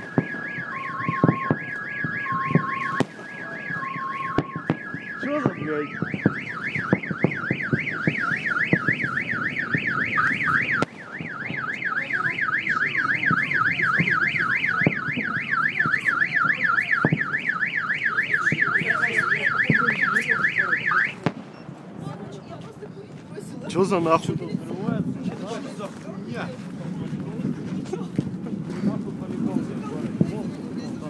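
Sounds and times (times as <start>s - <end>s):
car alarm siren warbling: 0.0s - 21.2s.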